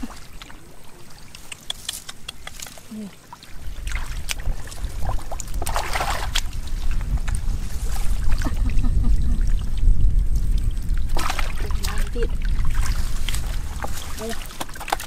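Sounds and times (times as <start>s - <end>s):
muddy water sloshing and splashing: 0.0s - 15.0s
sharp clicks: 1.4s - 2.8s
steady low rumble: 3.5s - 14.2s.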